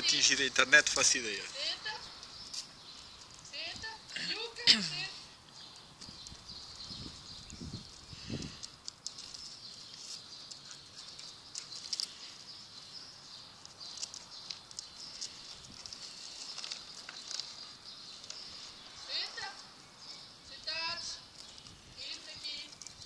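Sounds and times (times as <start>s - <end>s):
dog claws clicking on concrete: 7.8s - 12.5s, 13.5s - 18.4s, 21.2s - 23.0s.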